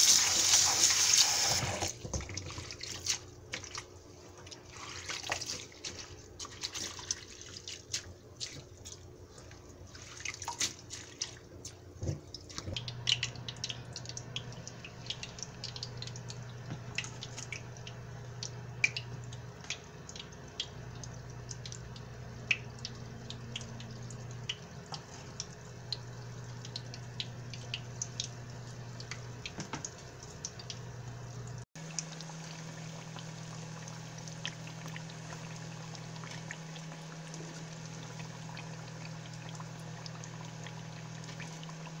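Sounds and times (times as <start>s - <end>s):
water sloshing in a bowl: 1.9s - 30.9s.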